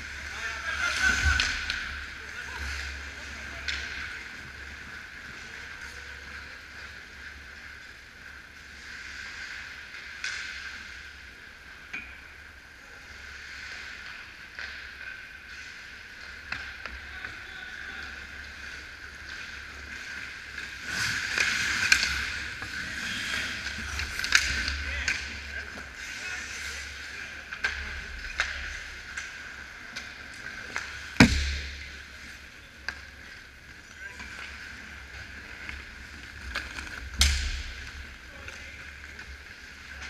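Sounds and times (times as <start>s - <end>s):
hockey sticks and puck clacking: 0.1s - 7.0s, 9.5s - 11.1s, 13.6s - 40.0s
skate blades scraping ice: 18.1s - 40.0s.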